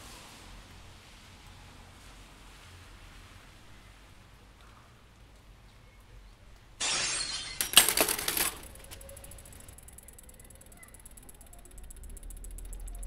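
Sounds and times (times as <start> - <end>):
glass clinking: 6.8 - 8.0
bicycle crashing to ground: 6.8 - 9.4
metal clattering: 6.8 - 9.8.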